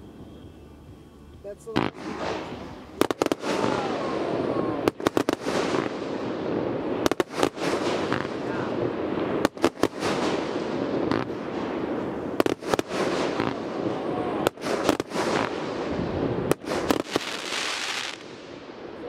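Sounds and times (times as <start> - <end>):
firework crackling: 0.0 - 19.0
firework bangs: 1.6 - 19.0.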